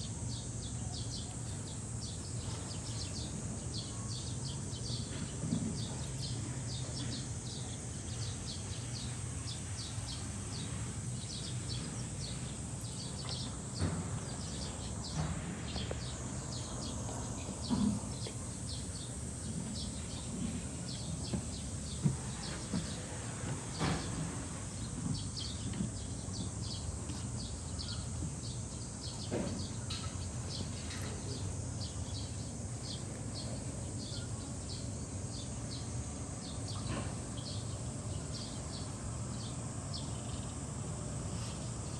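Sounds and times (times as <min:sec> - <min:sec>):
outdoor background hum: 0:00.0 - 0:41.9.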